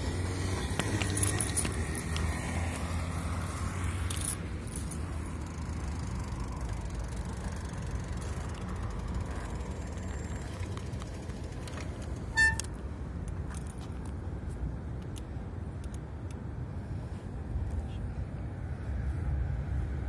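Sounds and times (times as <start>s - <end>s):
bike rattling: 0.0s - 14.2s
bicycle tyres on pavement: 0.0s - 15.6s.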